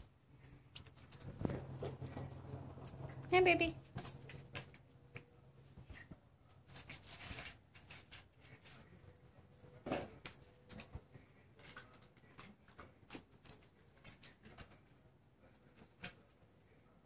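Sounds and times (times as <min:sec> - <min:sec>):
puppy claws clicking on tile: 0:00.0 - 0:08.8, 0:11.6 - 0:14.9.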